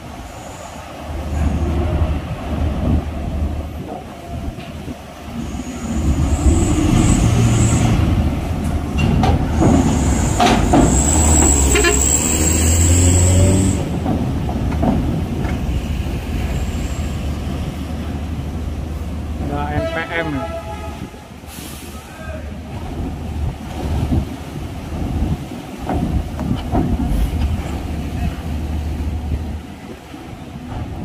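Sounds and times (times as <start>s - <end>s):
diesel truck driving past: 5.4s - 14.5s
wheels clanking on steel plates: 8.6s - 15.8s.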